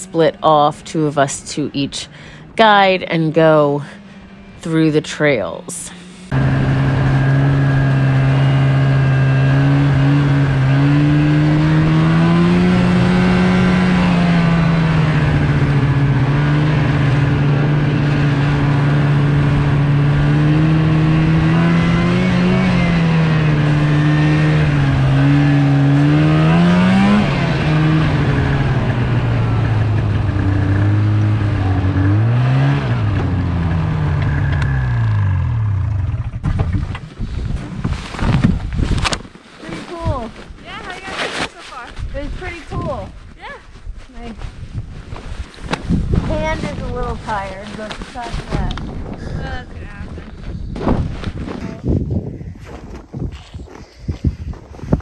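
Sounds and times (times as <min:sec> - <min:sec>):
snowmobile engine revving: 0:00.0 - 0:36.5, 0:39.6 - 0:43.5.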